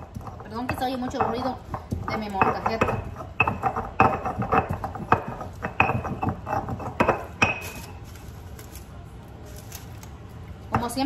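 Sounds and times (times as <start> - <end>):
stone pestle pounding and grinding: 0.0 - 8.1.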